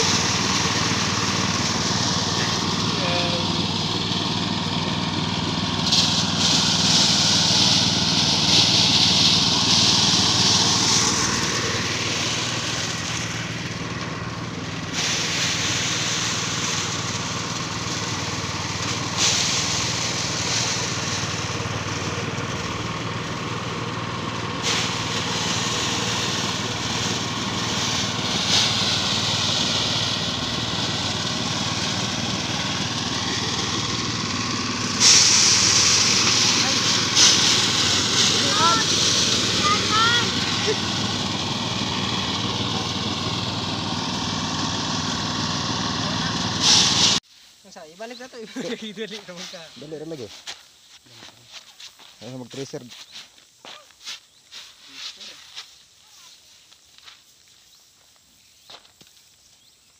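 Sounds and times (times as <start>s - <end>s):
small engine running: 0.0s - 47.2s
threshing drum rushing hiss: 0.0s - 50.5s.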